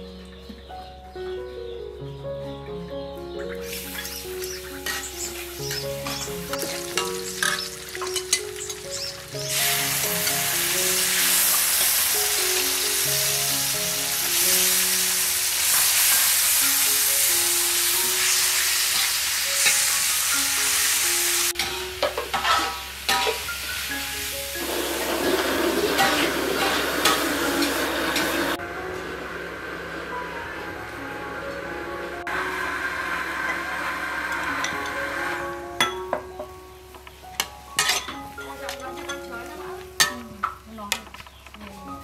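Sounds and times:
meat sizzling in a wok: 3.6s - 28.6s, 32.3s - 36.4s
metal spatula scraping wok: 3.7s - 12.2s, 18.2s - 20.9s, 21.6s - 23.6s, 25.1s - 28.6s.

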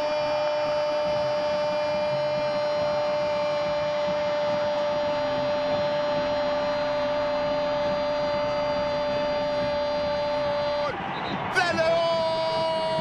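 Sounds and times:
stadium crowd noise: 0.0s - 13.0s
commentator's drawn-out goal cry: 10.5s - 13.0s.

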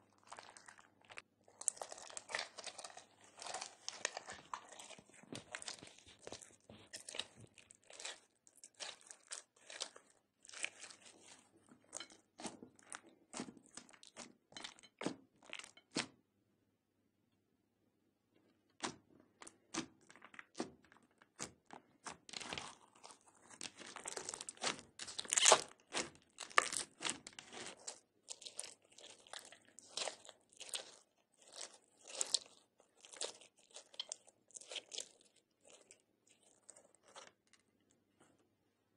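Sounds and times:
squeezing beaded slime: 0.1s - 14.2s, 22.0s - 37.3s.

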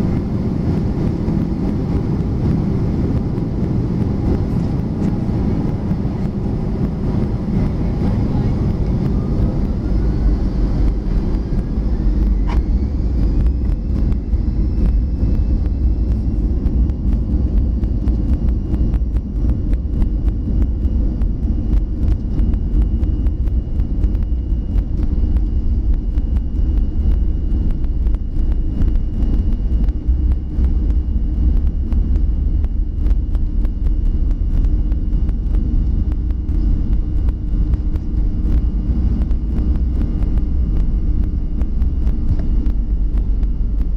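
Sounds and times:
aircraft cabin rumble: 0.0s - 43.9s
engine whine: 0.0s - 43.9s
small ticks and bumps: 12.5s - 43.9s.

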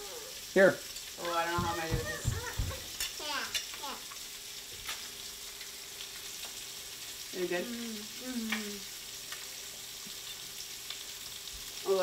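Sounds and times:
fish sizzling in a pan: 0.0s - 12.0s
person humming: 7.6s - 8.8s.

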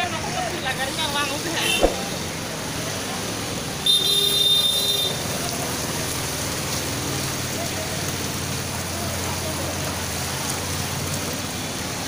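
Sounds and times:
floodwater rushing: 0.5s - 3.8s.

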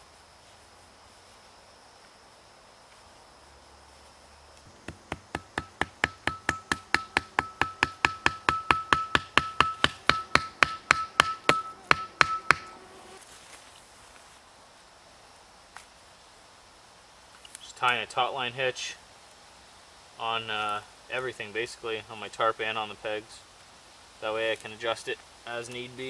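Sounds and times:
wooden peg being hammered: 4.7s - 12.7s.

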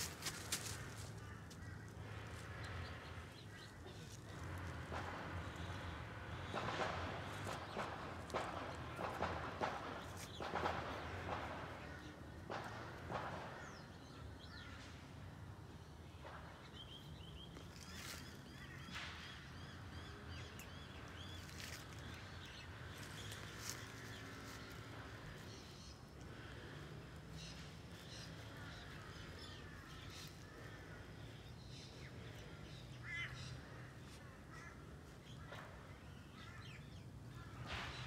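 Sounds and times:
footsteps in grass and leaves: 0.0s - 3.0s, 17.5s - 18.8s, 20.6s - 31.3s
outdoor background: 0.0s - 38.0s.

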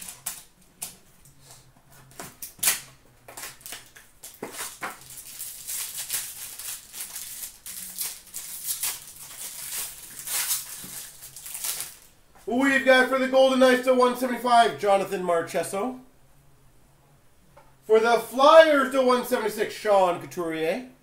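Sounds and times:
foil wrapper crinkling: 0.0s - 1.0s, 2.0s - 12.2s.

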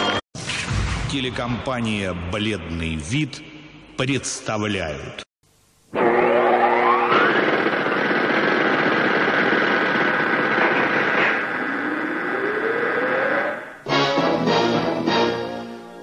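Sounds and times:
steady high tones: 5.9s - 8.7s
noisy electronic sound effects: 5.9s - 13.8s
rising electronic tone: 6.0s - 8.2s, 11.4s - 13.8s.

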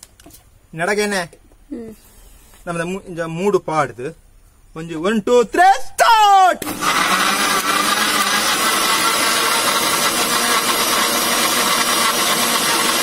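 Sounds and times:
mixer grinder whirring: 6.6s - 13.0s.

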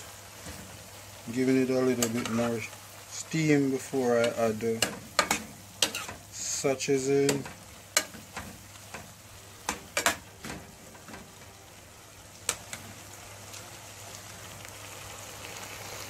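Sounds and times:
vegetables sizzling: 0.0s - 16.0s
metal spoon scraping pan: 4.2s - 6.2s.

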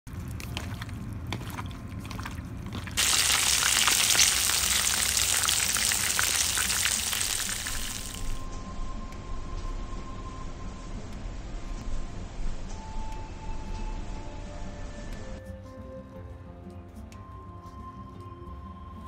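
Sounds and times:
wet squishing of chicken mixed by hand: 0.1s - 8.4s
chicken deep-frying in oil: 0.1s - 8.5s.

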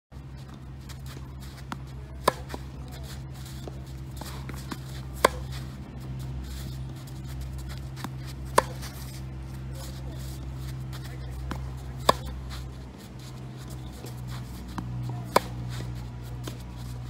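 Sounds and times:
steady low hum: 0.1s - 17.0s
tennis racket striking ball: 0.9s - 17.0s.

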